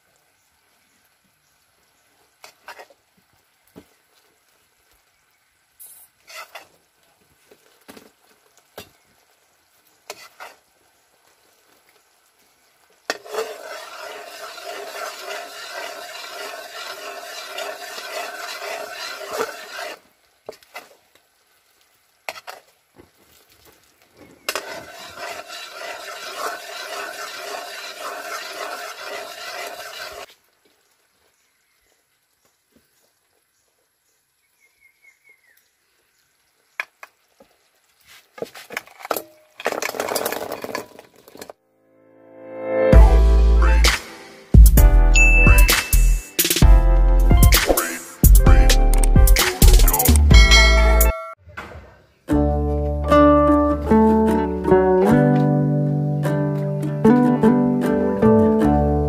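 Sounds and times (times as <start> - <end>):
sugar syrup sizzling: 0.8 - 32.4, 42.9 - 51.1
metal ladle scraping wok: 6.3 - 6.7, 13.1 - 20.0, 24.4 - 30.3.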